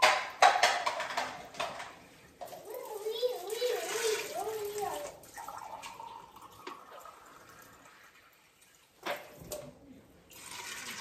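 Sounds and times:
water running into sink: 2.4s - 11.0s.

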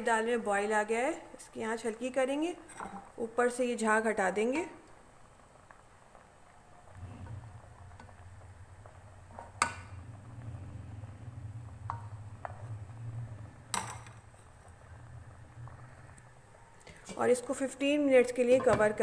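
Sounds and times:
low steady rumble: 6.7s - 19.0s.

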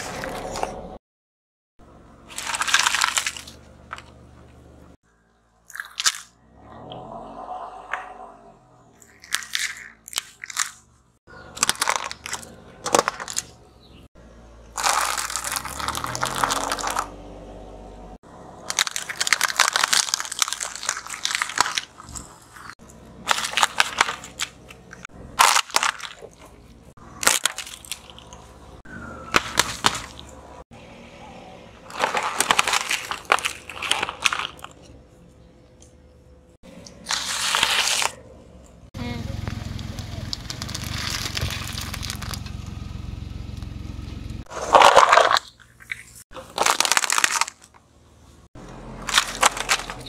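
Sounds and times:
tyre crushing candy and packaging: 0.0s - 1.0s, 2.2s - 4.4s, 5.7s - 6.4s, 9.0s - 13.6s, 14.7s - 17.2s, 18.5s - 30.6s, 31.8s - 35.0s, 36.7s - 38.3s, 39.3s - 42.6s, 44.4s - 47.9s, 48.8s - 50.0s
low rising hum: 38.1s - 44.5s.

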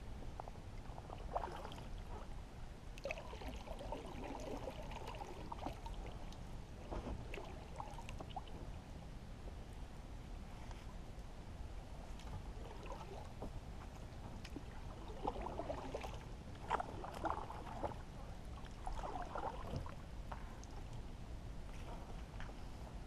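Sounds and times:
low steady rumble: 0.0s - 23.0s
water sloshing and splashing: 0.2s - 8.8s, 12.1s - 21.1s.

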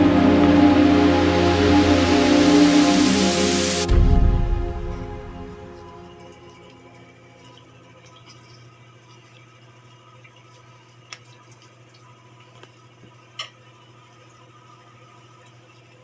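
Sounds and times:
low hum: 0.0s - 8.2s.

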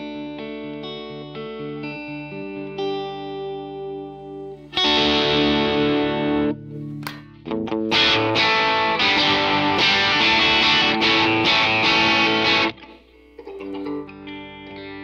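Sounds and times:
electric guitar strummed chords: 0.0s - 15.0s.

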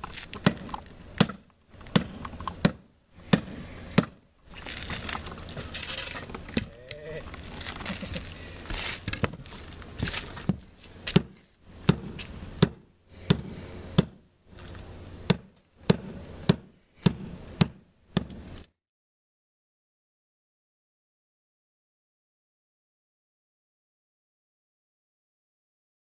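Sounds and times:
scraping and light knocks: 4.5s - 11.6s
hammer blows on roof deck: 15.2s - 18.4s.

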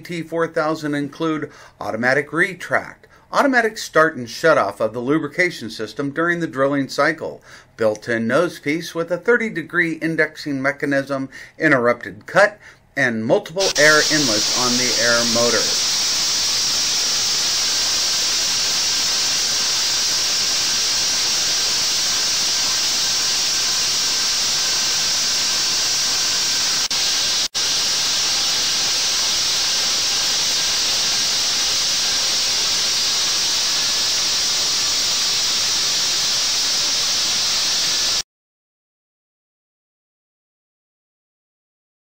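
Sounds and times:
air drill motor hissing: 13.6s - 38.2s.

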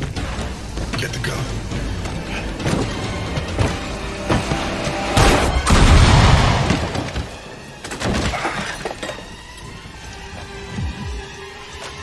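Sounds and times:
heavy crash impact: 5.1s - 7.4s.

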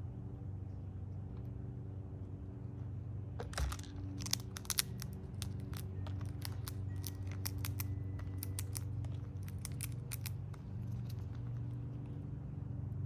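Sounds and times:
steady low hum: 0.0s - 13.0s
squirrel cracking seeds: 3.4s - 12.3s.

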